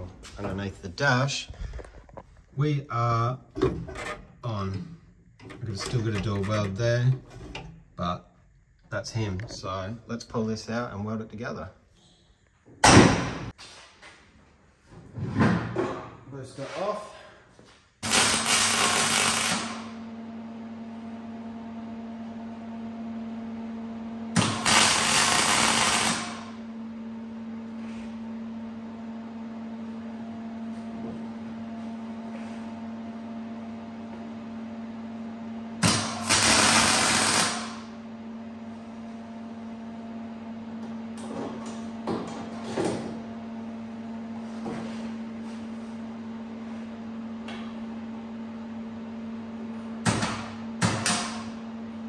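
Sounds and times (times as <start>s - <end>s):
arc welder crackling buzz: 18.0s - 20.0s, 24.3s - 26.7s, 35.8s - 38.0s.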